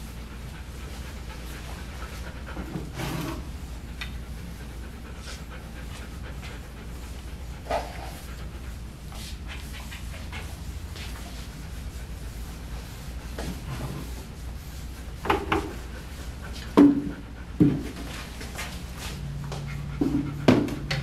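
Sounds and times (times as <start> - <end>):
brush stroking through dog fur: 9.1 - 16.7.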